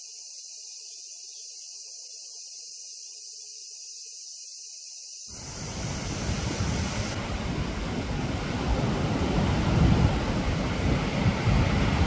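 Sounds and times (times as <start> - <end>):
rough surf breaking: 5.3 - 12.0
wind buffeting microphone: 5.4 - 12.0.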